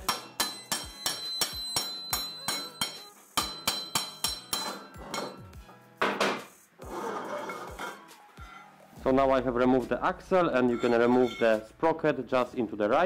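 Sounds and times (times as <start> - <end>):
hammer striking steel axle: 0.0 - 5.5.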